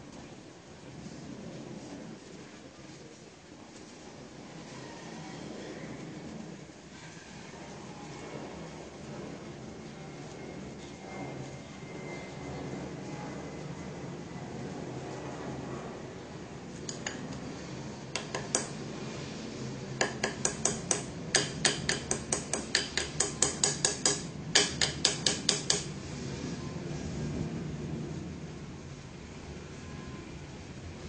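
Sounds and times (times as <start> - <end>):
utensil knocking against bowl: 18.2 - 18.8, 20.0 - 25.9.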